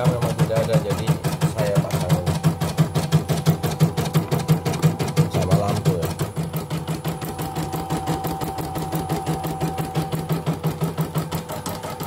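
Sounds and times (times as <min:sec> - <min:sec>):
embroidery machine needle clatter: 0:00.0 - 0:12.0
motor whine: 0:02.4 - 0:12.0.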